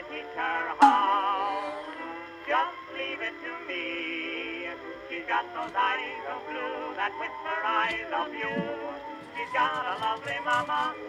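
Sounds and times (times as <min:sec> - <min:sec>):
man singing with vibrato: 0:00.0 - 0:11.0
instrumental accompaniment: 0:00.8 - 0:02.3.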